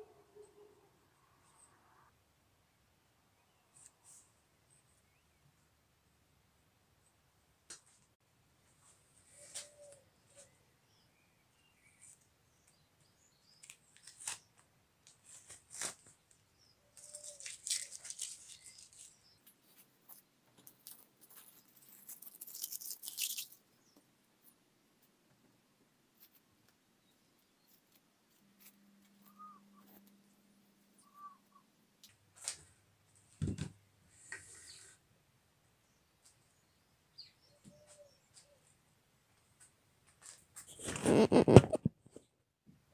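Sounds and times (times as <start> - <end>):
fabric and tape rustling: 13.6 - 23.4, 40.1 - 41.9.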